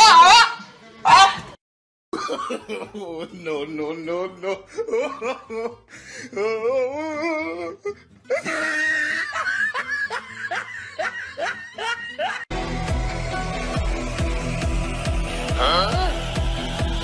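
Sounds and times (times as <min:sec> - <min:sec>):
music: 0:02.9 - 0:17.0
person laughing hard: 0:04.6 - 0:05.8, 0:08.3 - 0:12.5.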